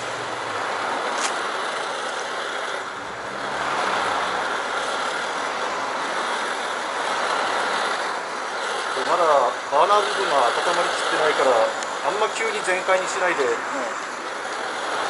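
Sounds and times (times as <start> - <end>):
camp stove roaring: 0.0 - 15.0
sharp click: 1.2 - 1.4.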